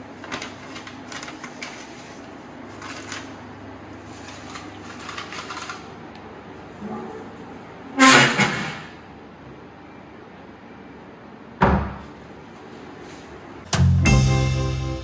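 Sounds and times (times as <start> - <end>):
paper rustling and crinkling: 0.0 - 5.9.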